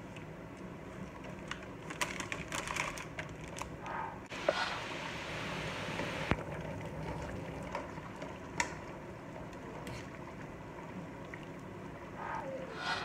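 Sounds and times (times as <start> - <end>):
water boiling and bubbling: 4.4 - 13.0.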